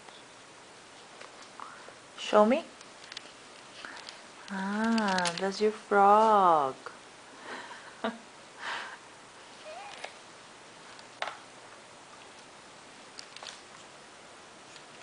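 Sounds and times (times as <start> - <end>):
infant cooing: 9.6 - 10.2.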